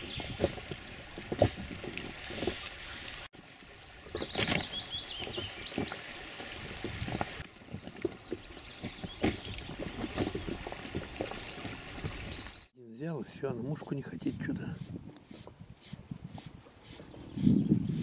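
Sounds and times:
songbird singing: 0:03.4 - 0:06.0, 0:07.4 - 0:09.8, 0:11.3 - 0:13.0, 0:14.7 - 0:18.0.

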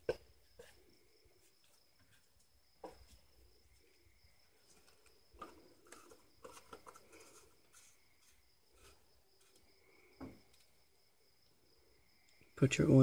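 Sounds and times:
high insect trill: 0:00.0 - 0:13.0
funnel clicks and rustles: 0:04.5 - 0:09.7.

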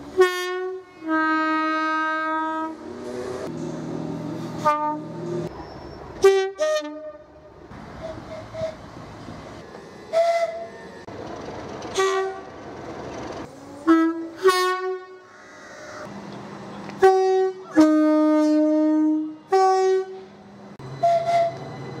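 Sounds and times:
two-tone train horn toots: 0:00.2 - 0:02.8, 0:04.6 - 0:05.2, 0:06.2 - 0:07.3, 0:13.9 - 0:15.2, 0:17.0 - 0:20.3, 0:21.0 - 0:21.6.

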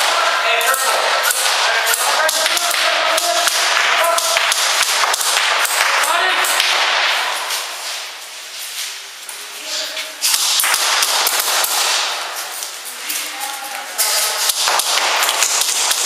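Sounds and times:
airsoft guns firing: 0:00.0 - 0:07.4, 0:10.3 - 0:12.3, 0:14.4 - 0:16.0
voices: 0:00.0 - 0:07.8, 0:08.9 - 0:10.3, 0:12.1 - 0:15.1.

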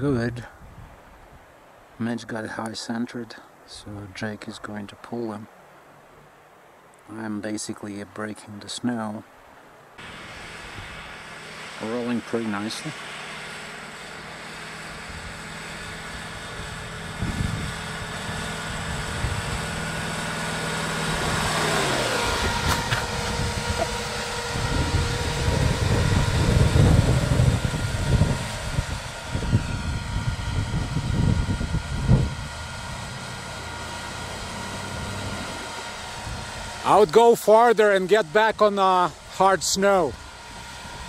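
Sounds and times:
truck engine running: 0:10.0 - 0:41.0
tyres churning snow: 0:10.0 - 0:41.0.

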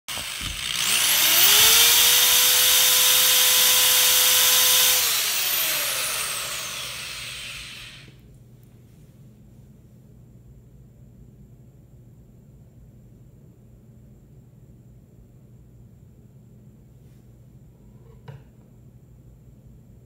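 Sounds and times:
small electric motor whining: 0:00.1 - 0:08.2.

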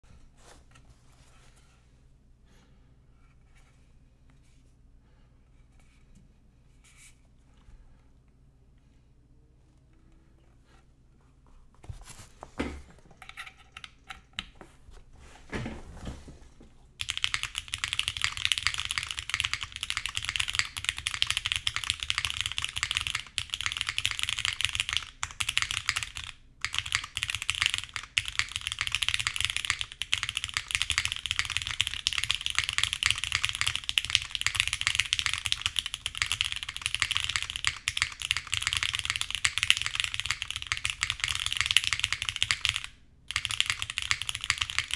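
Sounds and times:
fast typing on mechanical keyboard: 0:17.0 - 0:44.9.

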